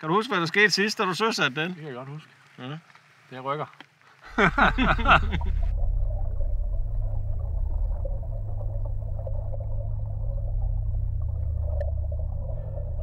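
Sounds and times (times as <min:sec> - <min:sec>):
low underwater rumble: 0:04.3 - 0:13.0.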